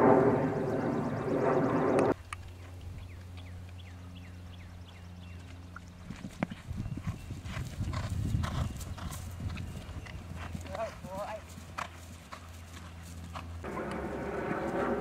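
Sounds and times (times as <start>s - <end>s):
hoofbeats on grass: 5.2s - 15.0s
horse cantering strides: 5.2s - 15.0s.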